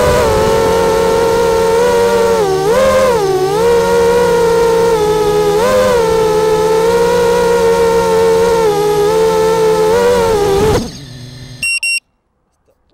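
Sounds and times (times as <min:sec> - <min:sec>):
drone motors whining: 0:00.0 - 0:12.0
short high electronic beep: 0:11.6 - 0:12.0.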